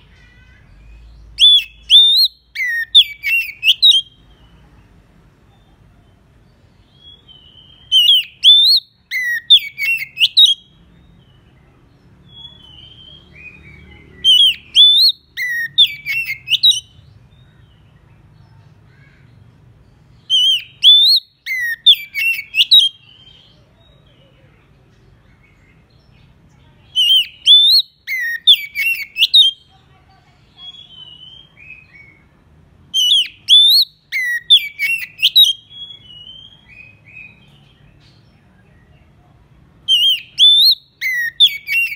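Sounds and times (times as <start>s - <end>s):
bird singing whistled phrase: 1.3s - 4.2s, 7.0s - 10.7s, 12.3s - 16.9s, 20.3s - 23.4s, 27.0s - 29.6s, 30.6s - 32.2s, 33.0s - 37.4s, 39.9s - 41.9s.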